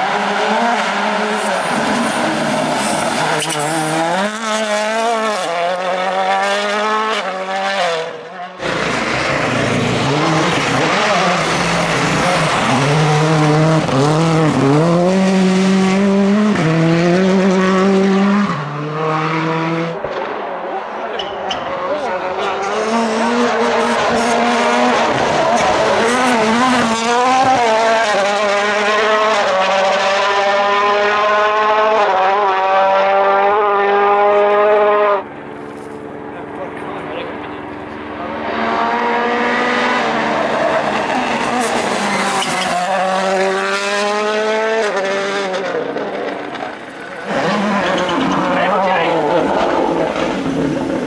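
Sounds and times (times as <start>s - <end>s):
rally car engine driven hard: 0.0s - 51.0s.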